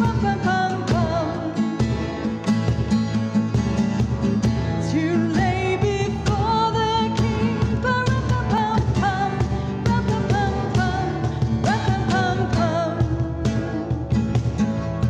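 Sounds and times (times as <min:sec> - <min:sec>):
woman singing a carol: 0:00.0 - 0:01.8, 0:04.8 - 0:14.0
acoustic guitar strumming: 0:00.0 - 0:15.0.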